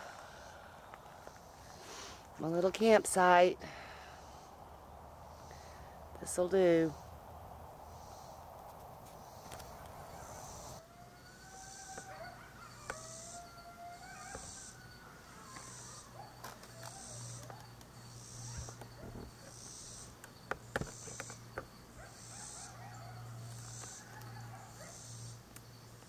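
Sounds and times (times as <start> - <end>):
coyotes howling: 9.2 - 25.4.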